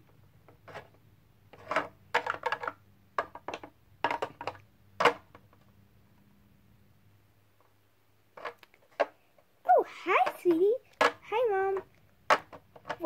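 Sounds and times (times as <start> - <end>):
plastic toy taps and clatters: 1.6 - 5.6, 10.2 - 13.0.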